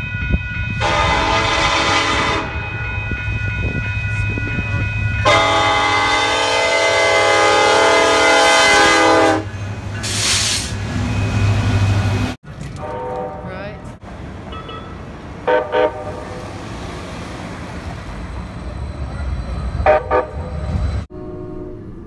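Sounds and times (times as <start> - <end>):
train rumbling: 0.0 - 22.0
train air horn blasts: 0.8 - 2.8, 5.2 - 9.5, 12.8 - 13.7, 15.4 - 16.2, 19.8 - 20.4, 21.1 - 22.0.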